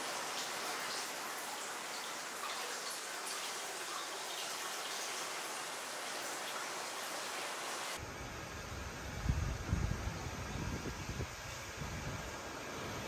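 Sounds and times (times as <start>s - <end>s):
water pouring into bath: 0.0s - 7.9s
water dripping: 0.0s - 8.0s.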